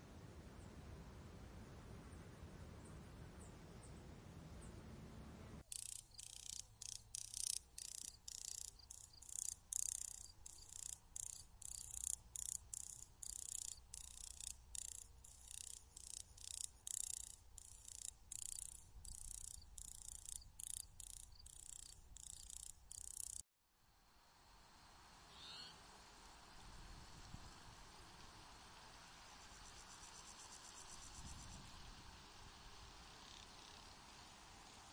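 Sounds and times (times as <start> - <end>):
insects chirping: 5.6 - 23.4, 28.4 - 32.0, 32.8 - 34.9.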